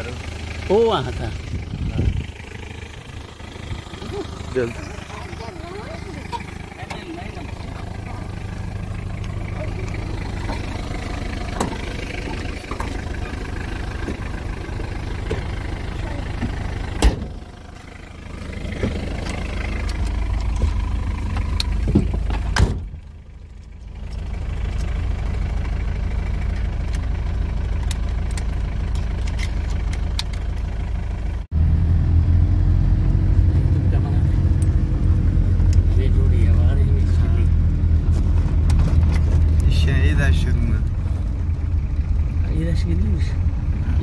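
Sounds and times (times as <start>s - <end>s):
vehicle engine rumbling: 0.0s - 44.0s.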